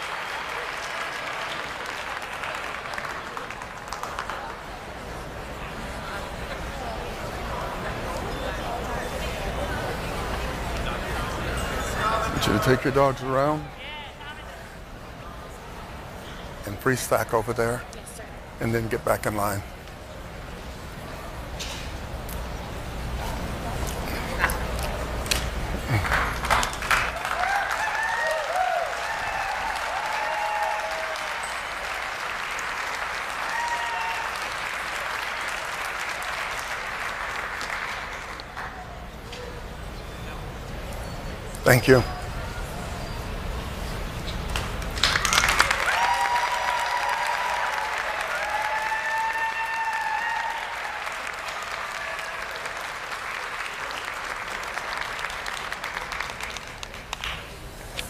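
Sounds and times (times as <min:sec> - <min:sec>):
audience applauding: 0:00.0 - 0:05.4, 0:24.3 - 0:39.0, 0:44.5 - 0:57.6.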